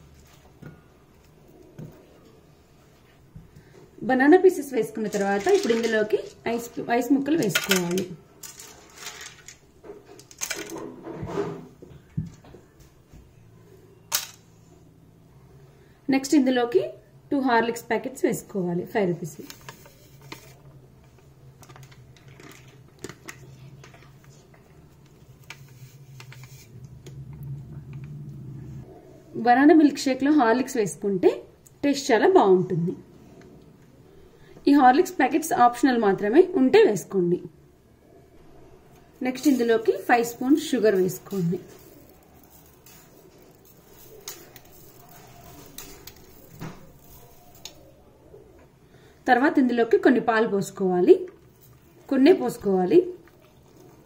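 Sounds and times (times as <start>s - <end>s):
plastic sachet crinkling: 7.4s - 9.6s, 39.4s - 47.9s
low steady hum: 11.7s - 31.8s.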